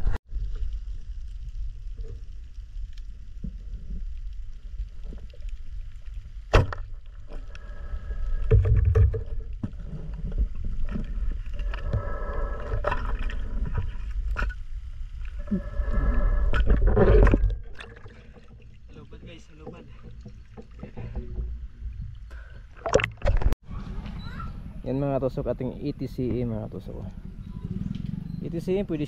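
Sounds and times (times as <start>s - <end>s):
underwater rumble of water: 0.0s - 29.0s
ticks and knocks underwater: 16.6s - 22.2s, 22.8s - 23.6s.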